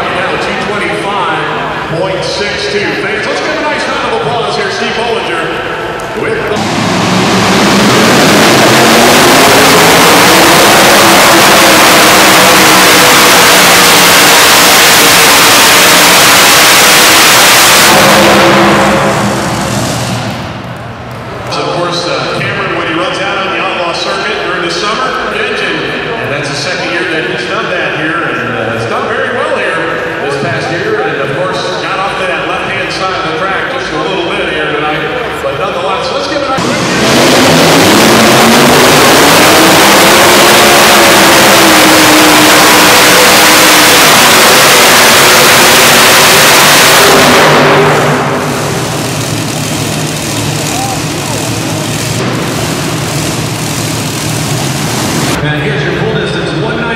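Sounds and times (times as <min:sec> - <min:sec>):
engines winding down: 0:00.0 - 0:26.0, 0:36.4 - 0:56.4
tractor engines at full throttle: 0:00.0 - 0:28.5, 0:29.5 - 0:56.9.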